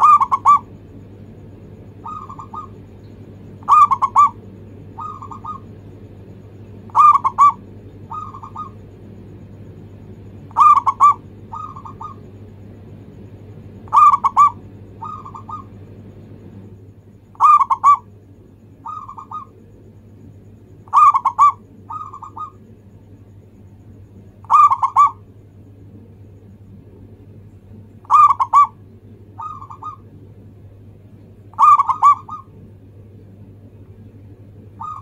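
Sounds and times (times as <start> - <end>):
dove cooing: 0.0 - 0.9, 1.9 - 6.0, 6.8 - 9.0, 10.3 - 12.4, 13.8 - 15.9, 17.3 - 18.1, 18.7 - 19.7, 20.8 - 22.7, 24.3 - 25.3, 28.0 - 30.2, 31.5 - 32.6, 34.7 - 35.0.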